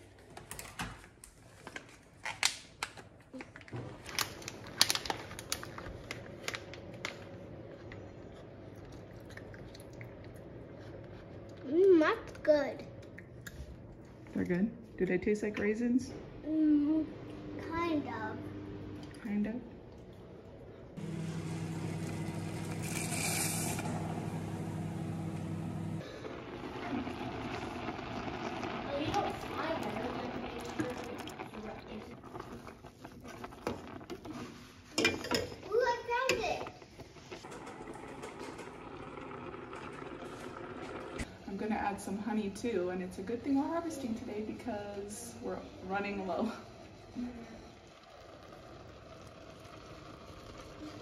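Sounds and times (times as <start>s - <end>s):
plastic pouch tearing and crinkling: 4.0s - 6.2s
steady low hum: 16.1s - 32.4s.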